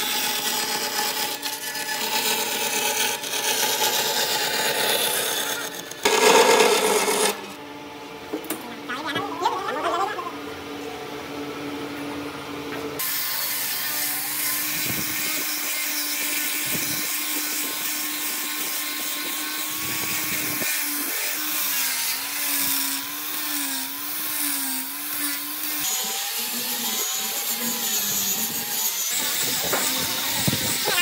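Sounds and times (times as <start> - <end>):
angle grinder motor whine: 0.0 - 7.6, 13.0 - 31.0
sanding disc hissing on wood: 13.0 - 31.0.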